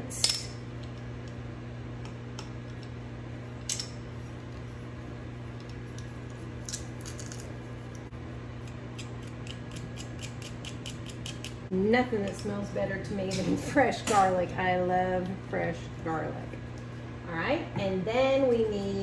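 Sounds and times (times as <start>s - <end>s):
spoon scraping garlic press: 8.6s - 11.6s.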